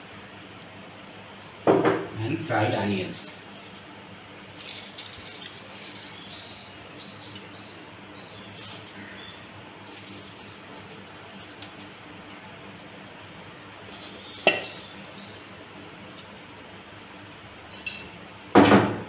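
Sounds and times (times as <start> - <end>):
kitchenware clinking: 14.3 - 15.0
kitchenware clattering: 14.4 - 15.0.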